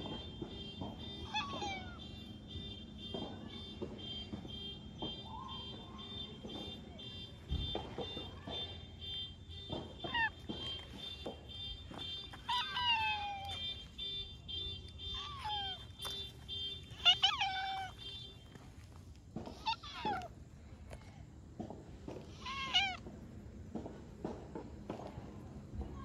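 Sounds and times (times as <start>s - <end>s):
cat meowing: 17.0s - 18.0s, 19.5s - 20.3s, 22.4s - 23.0s.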